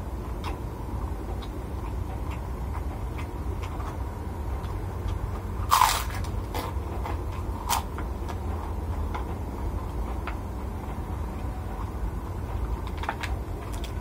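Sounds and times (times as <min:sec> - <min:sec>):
chewing crackles: 0:01.3 - 0:14.0
crunching bites into cracker: 0:05.6 - 0:07.9.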